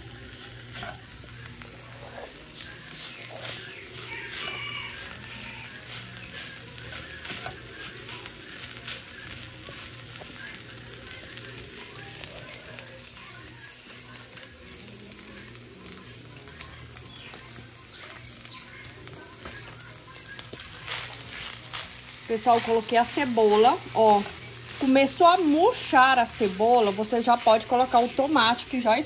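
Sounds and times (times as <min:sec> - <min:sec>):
meat sizzling in a pan: 0:00.0 - 0:29.0
wooden spoon stirring: 0:20.3 - 0:28.7.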